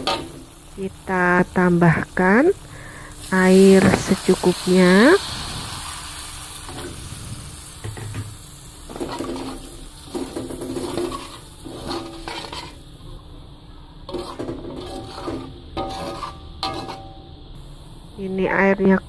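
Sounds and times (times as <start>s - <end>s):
metal spatula scraping a pan: 0.0s - 0.4s, 8.9s - 12.9s, 14.1s - 17.3s
light sizzle: 0.0s - 19.0s.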